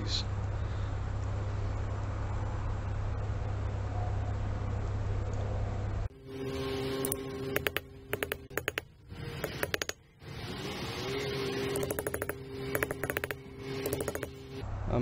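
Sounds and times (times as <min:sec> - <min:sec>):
steady background hum: 0:00.0 - 0:15.0
sharp metal clicks: 0:07.0 - 0:10.0, 0:11.8 - 0:14.6.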